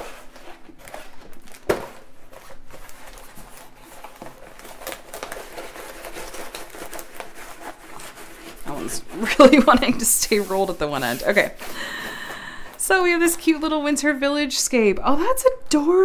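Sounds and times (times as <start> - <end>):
stiff canvas crinkling and rustling: 0.0 - 11.8.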